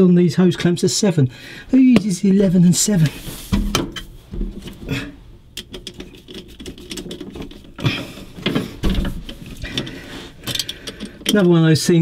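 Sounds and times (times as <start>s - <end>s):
hose clamp screw clicking: 9.2s - 11.6s.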